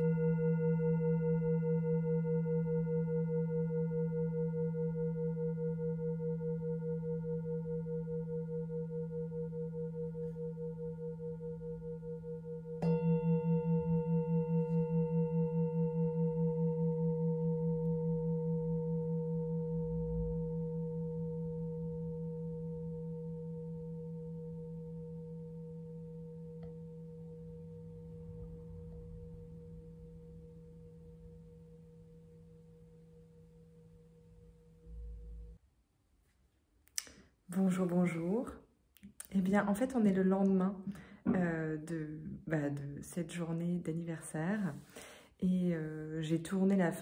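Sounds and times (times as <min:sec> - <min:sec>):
singing bowl ringing: 0:00.0 - 0:35.6.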